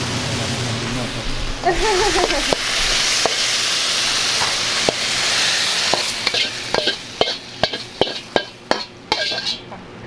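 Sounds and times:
food sizzling: 0.0s - 9.8s
metal spatula scraping wok: 2.2s - 9.7s.

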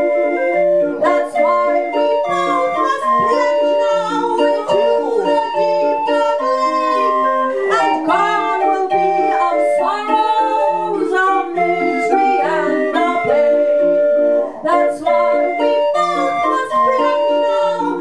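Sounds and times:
barrel organ playing: 0.0s - 18.0s
woman singing: 0.0s - 18.0s.

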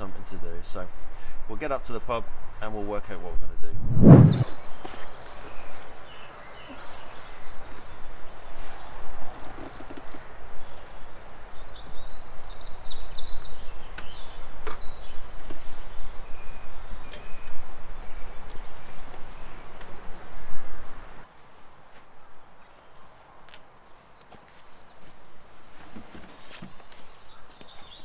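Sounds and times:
steady outdoor noise: 0.0s - 28.0s
small birds chirping: 4.1s - 21.3s, 26.3s - 28.0s.

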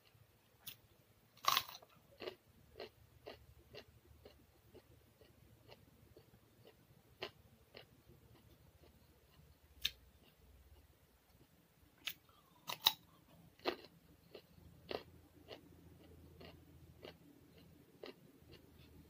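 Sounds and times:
carrot crunching: 1.4s - 5.8s, 12.0s - 19.0s.

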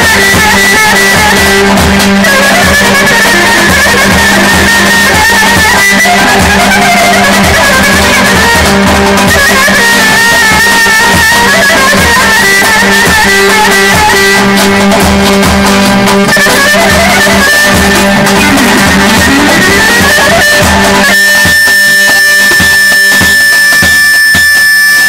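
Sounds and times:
clarinet melody: 0.0s - 25.0s
hand drums beating: 0.0s - 25.0s
keyboard drone: 0.0s - 25.0s.

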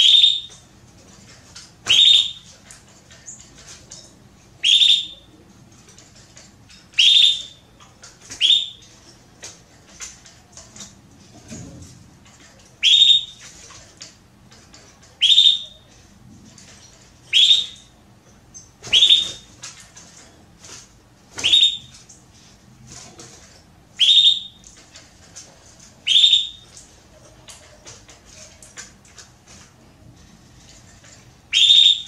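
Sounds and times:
canary chirping: 0.0s - 0.6s, 1.8s - 2.6s, 4.6s - 5.3s, 6.9s - 7.6s, 8.3s - 8.9s, 12.8s - 13.4s, 15.2s - 15.9s, 17.3s - 17.9s, 18.6s - 19.5s, 21.4s - 22.0s, 24.0s - 24.6s, 26.0s - 26.8s, 31.5s - 32.0s
soft bird chirps: 8.4s - 8.9s, 12.8s - 13.4s, 18.6s - 19.5s, 21.4s - 21.9s.

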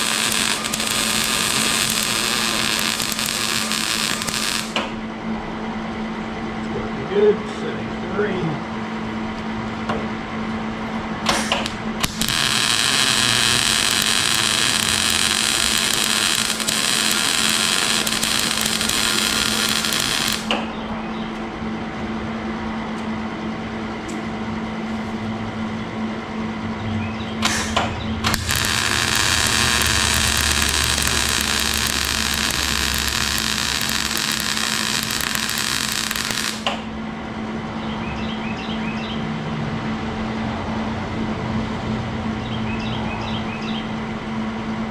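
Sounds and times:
welding arc crackling: 0.0s - 5.0s, 11.4s - 20.7s, 27.4s - 36.9s
steady low hum: 0.0s - 42.8s.

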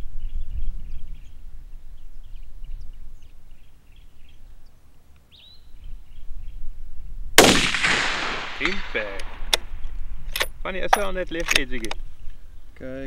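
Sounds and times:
wind rumble on microphone: 0.0s - 4.6s, 5.6s - 7.4s
small birds chirping: 0.0s - 6.9s, 8.6s - 13.0s.

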